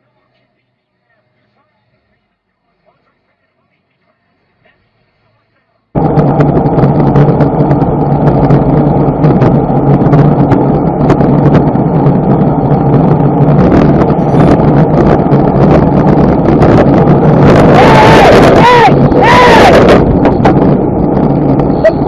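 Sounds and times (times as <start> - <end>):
vehicle engine running: 0.0 - 22.0
wind buffeting microphone: 6.0 - 22.0.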